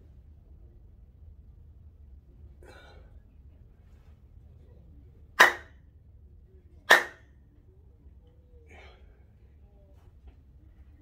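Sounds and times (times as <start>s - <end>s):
sharp hand claps: 5.4s - 5.7s, 6.9s - 7.2s.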